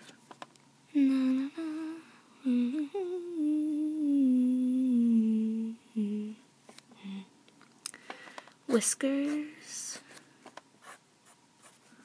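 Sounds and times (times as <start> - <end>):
girl humming: 0.9 - 7.3.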